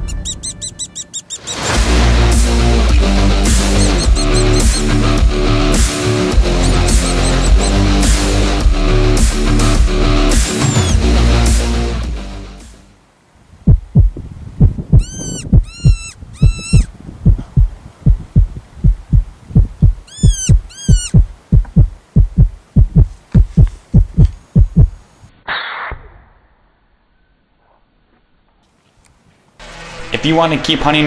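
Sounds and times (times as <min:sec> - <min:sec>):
high arching squeals: 0:00.0 - 0:01.8, 0:03.6 - 0:05.0, 0:06.4 - 0:07.9, 0:10.5 - 0:11.0, 0:14.9 - 0:16.9, 0:20.0 - 0:21.2
heartbeat thumps: 0:02.9 - 0:04.8, 0:06.4 - 0:07.8, 0:13.7 - 0:25.0.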